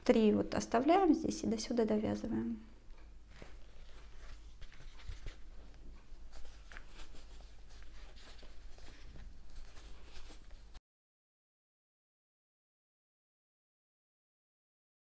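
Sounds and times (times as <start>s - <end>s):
crochet hook rustling yarn: 2.1s - 10.8s.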